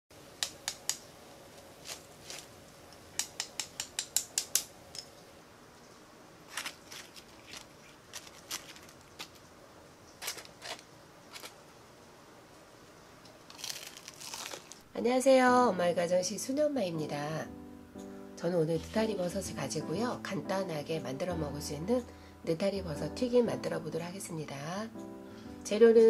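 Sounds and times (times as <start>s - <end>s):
fried tempura crackling: 6.4s - 11.6s, 13.3s - 14.9s.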